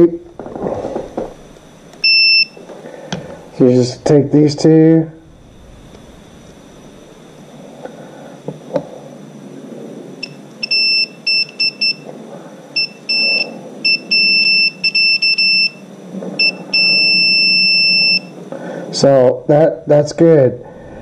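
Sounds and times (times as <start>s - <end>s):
multimeter continuity beeps: 1.4s - 2.8s, 10.2s - 12.1s, 12.7s - 18.4s.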